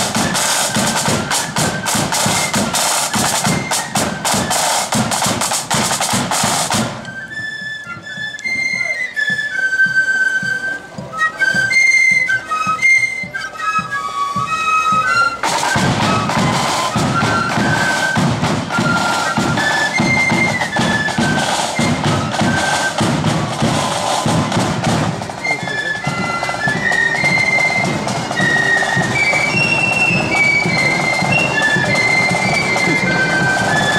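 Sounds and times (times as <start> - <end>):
flutes playing a melody: 0.0 - 33.9
side drums: 0.0 - 33.9.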